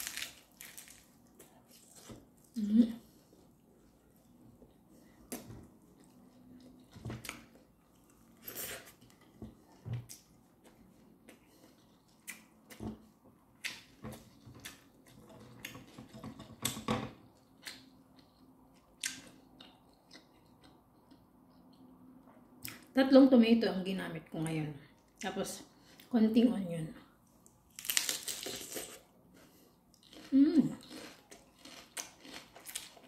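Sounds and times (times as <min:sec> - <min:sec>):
person chewing and crunching: 0:00.0 - 0:03.4, 0:27.7 - 0:33.0.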